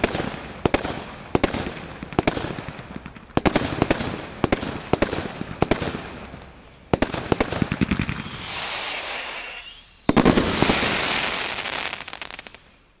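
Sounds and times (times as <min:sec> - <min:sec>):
firework bangs: 0:00.0 - 0:12.7
dense firework crackling: 0:00.0 - 0:13.0
firework fizzing crackle: 0:06.5 - 0:13.0.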